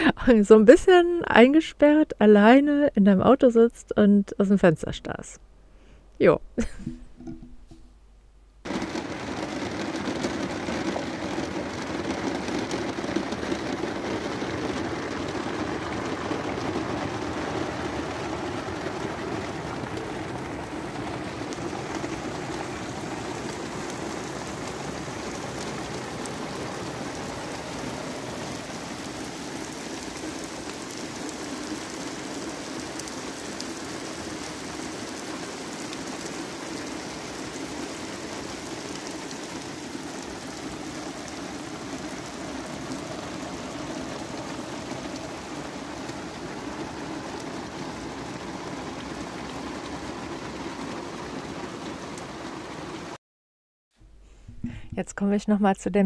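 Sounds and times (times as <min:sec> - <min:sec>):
heavy rain: 0:08.6 - 0:53.2.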